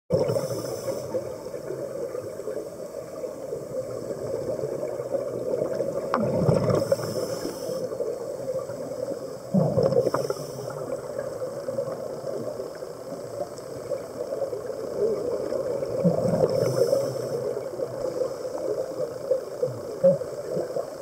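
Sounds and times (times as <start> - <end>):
diver exhaling bubbles: 0.1 - 1.5, 5.5 - 7.9, 9.4 - 11.3, 15.6 - 18.0
underwater rush of water: 0.1 - 21.0.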